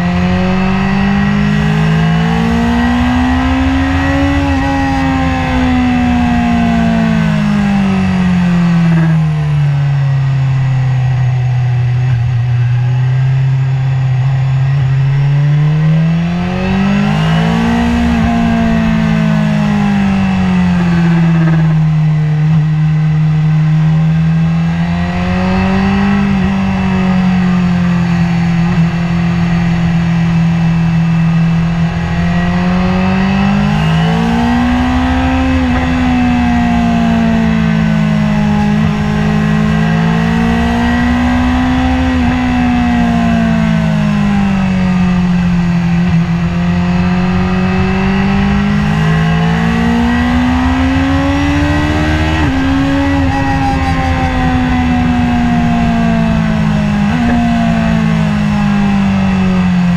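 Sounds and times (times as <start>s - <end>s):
motorcycle engine revving: 0.0s - 59.9s
wind rush: 50.2s - 59.9s.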